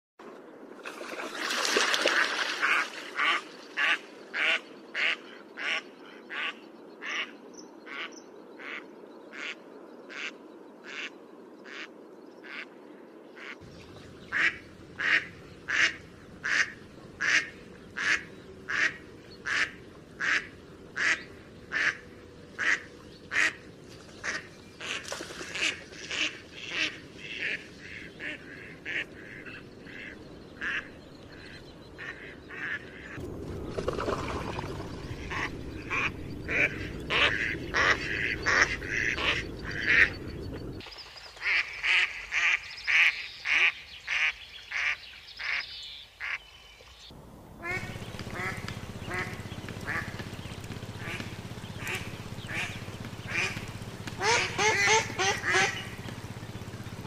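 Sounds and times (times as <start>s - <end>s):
ducks quacking: 2.0s - 7.3s, 7.9s - 12.7s, 14.2s - 33.2s, 34.1s - 40.8s, 47.6s - 57.0s.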